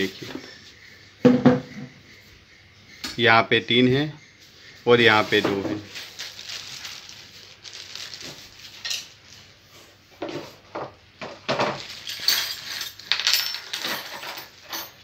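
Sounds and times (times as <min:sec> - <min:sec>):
handling clinks and knocks: 0:11.3 - 0:15.0.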